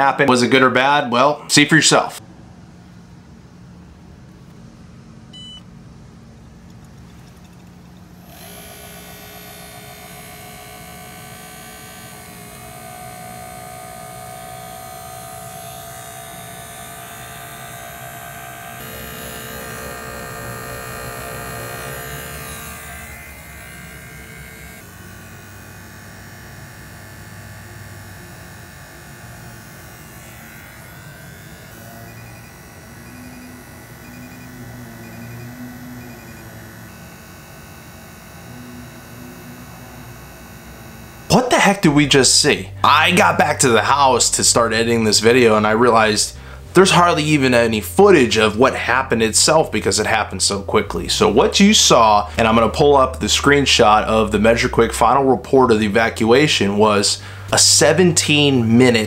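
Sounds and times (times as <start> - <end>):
vacuum pump hum and whine: 1.9 - 59.0.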